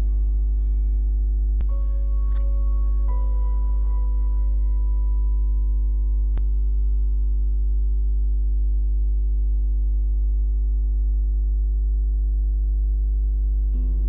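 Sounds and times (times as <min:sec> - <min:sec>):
ambient drone music: 0:00.0 - 0:08.1
deep bass tone: 0:00.0 - 0:14.0.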